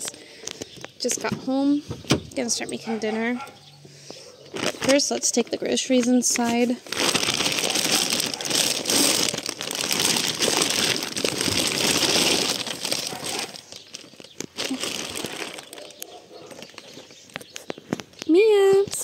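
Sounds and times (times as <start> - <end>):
plastic bags rustling: 4.4 - 19.0.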